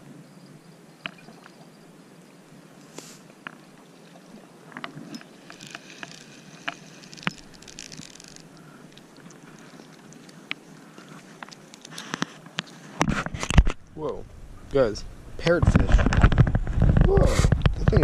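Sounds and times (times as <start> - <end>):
rod and reel handling clicks: 4.8 - 10.6, 11.3 - 12.8
fishing reel whirring: 5.2 - 8.7.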